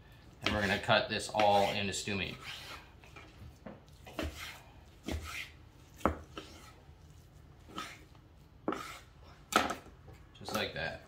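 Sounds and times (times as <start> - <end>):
knife slicing meat: 0.5 - 2.9, 3.9 - 8.1, 8.7 - 9.1.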